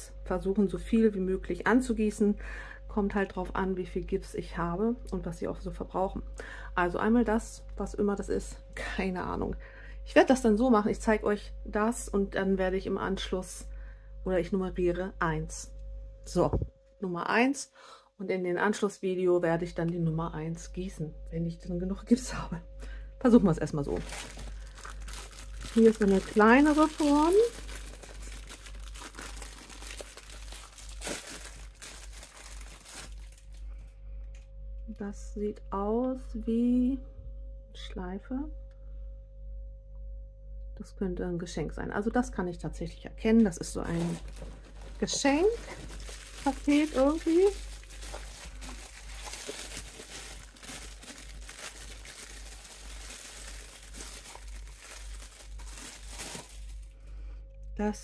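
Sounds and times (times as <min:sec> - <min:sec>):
plastic wrapping crinkling: 0:23.6 - 0:33.8, 0:43.8 - 0:57.0.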